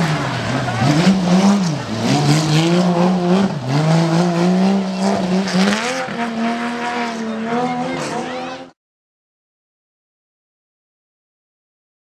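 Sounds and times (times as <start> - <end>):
rally car engine revving: 0.0 - 8.8.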